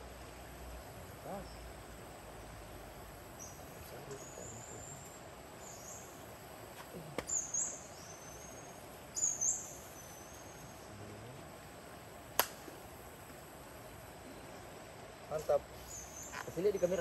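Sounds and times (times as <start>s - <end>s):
steady outdoor hiss: 0.0s - 17.0s
bird chirping: 1.2s - 1.8s, 3.4s - 6.3s, 7.0s - 11.0s, 15.8s - 17.0s.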